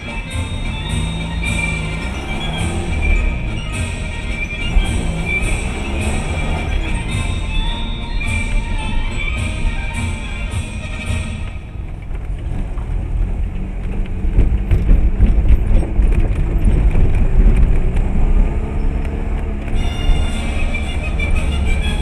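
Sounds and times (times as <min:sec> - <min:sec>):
car engine and road rumble: 0:00.0 - 0:22.0.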